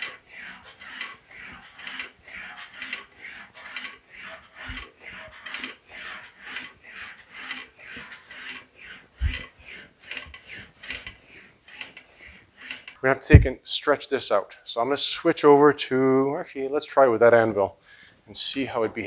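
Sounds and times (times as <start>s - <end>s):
metal panel swishing through wheel: 9.2s - 11.1s, 13.3s - 13.6s
low thumps: 13.3s - 13.6s.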